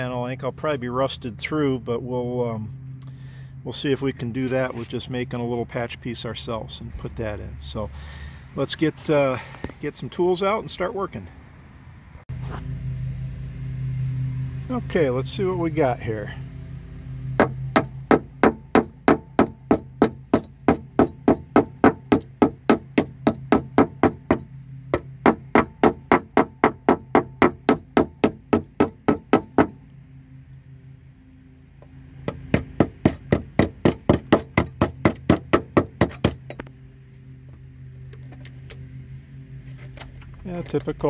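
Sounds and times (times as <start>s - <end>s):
hammer tapping on sheet steel: 17.4s - 29.8s, 32.2s - 36.6s.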